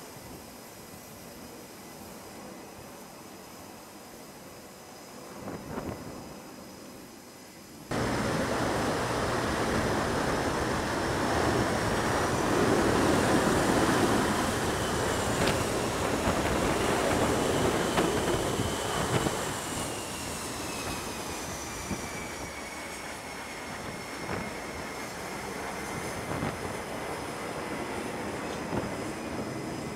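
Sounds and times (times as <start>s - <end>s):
jet engine roar: 0.0s - 29.9s
high engine whines falling in pitch: 7.9s - 29.9s.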